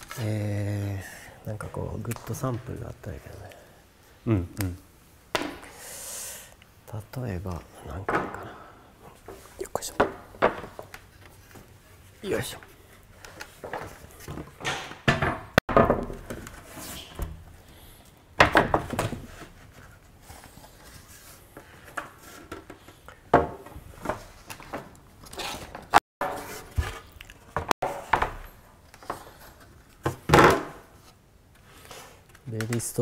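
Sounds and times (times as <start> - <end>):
wooden boards knocking together: 10.0 - 11.0, 14.6 - 16.6, 18.4 - 19.4, 30.0 - 30.8.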